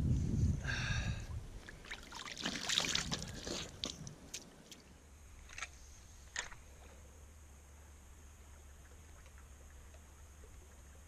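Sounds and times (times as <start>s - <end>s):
water sloshing and splashing: 1.6s - 5.8s.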